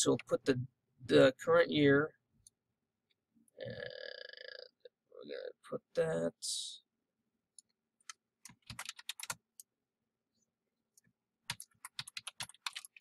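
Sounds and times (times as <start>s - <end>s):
typing on keyboard: 8.0s - 9.5s, 11.5s - 13.0s.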